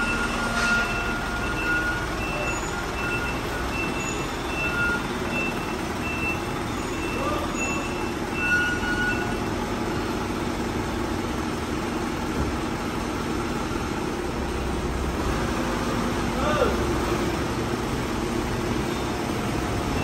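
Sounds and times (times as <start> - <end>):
reversing alarm beeping: 0.0 - 10.2, 18.8 - 20.0
diesel engine running: 0.0 - 20.0.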